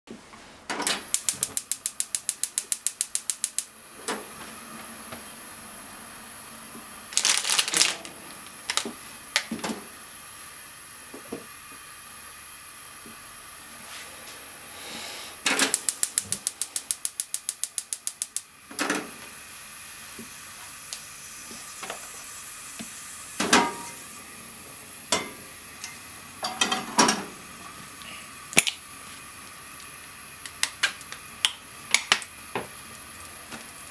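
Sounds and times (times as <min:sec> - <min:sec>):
gas stove igniter clicking: 0:00.9 - 0:03.7, 0:15.4 - 0:18.9.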